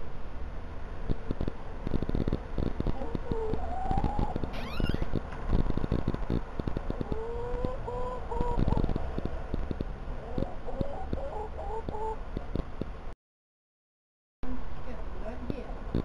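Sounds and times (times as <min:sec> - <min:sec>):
hens clucking: 0:02.9 - 0:04.4, 0:06.9 - 0:09.5, 0:10.2 - 0:12.2.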